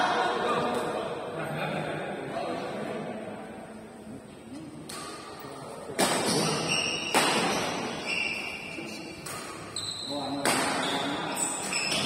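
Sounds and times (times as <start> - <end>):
rackets hitting shuttlecock: 4.8 - 8.0, 9.2 - 12.0
shoes squeaking on floor: 6.3 - 12.0.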